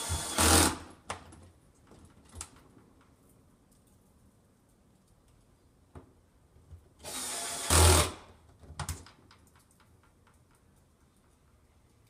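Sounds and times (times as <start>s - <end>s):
cordless drill driving screw: 0.0s - 0.8s, 7.0s - 8.2s
small clicks and knocks: 1.0s - 6.8s, 8.4s - 12.0s.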